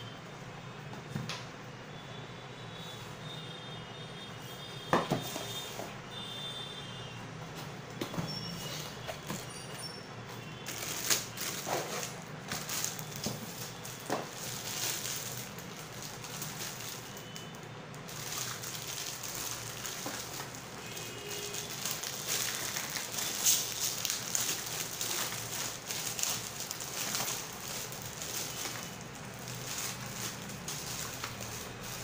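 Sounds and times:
plastic bag crinkling: 0:10.6 - 0:32.0.

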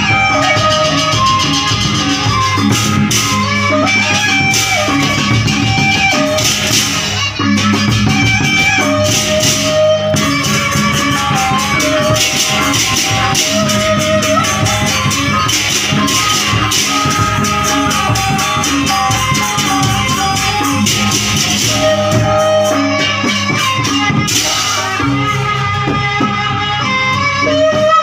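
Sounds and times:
bamboo flute melody: 0:00.0 - 0:28.0
large barrel drums: 0:00.0 - 0:28.0
small cymbals clashing: 0:09.0 - 0:25.2.

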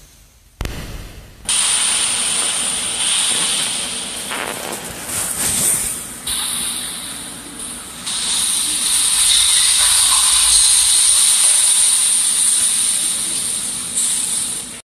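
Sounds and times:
steady loud hiss: 0:00.0 - 0:14.8.

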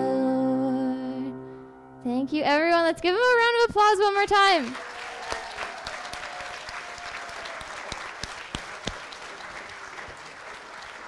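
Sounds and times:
audience applauding: 0:04.2 - 0:11.0.

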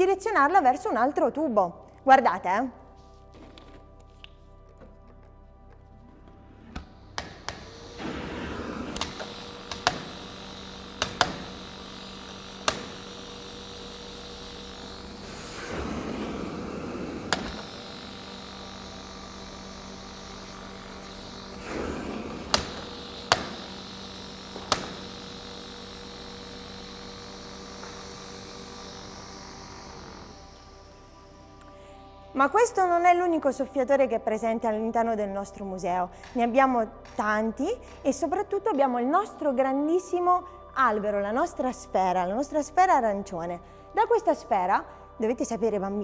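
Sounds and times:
electric blower humming: 0:03.3 - 0:32.4.

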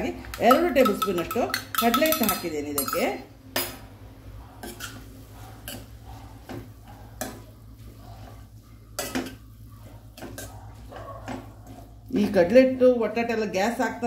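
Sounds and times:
steel spatula scraping a pan: 0:07.2 - 0:10.9.

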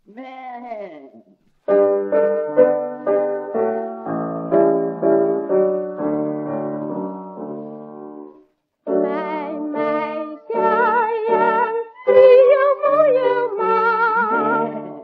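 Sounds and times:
piano chords: 0:01.7 - 0:15.0
woman singing with vibrato: 0:08.9 - 0:15.0.

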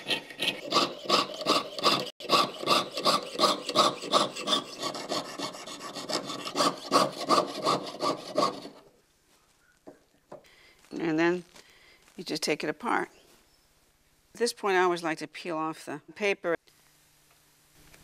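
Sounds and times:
saw rasping through metal: 0:00.0 - 0:08.8.

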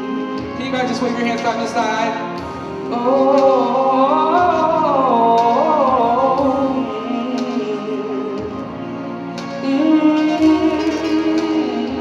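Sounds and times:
backing track: 0:00.0 - 0:12.0
man singing into a microphone: 0:02.9 - 0:09.0.

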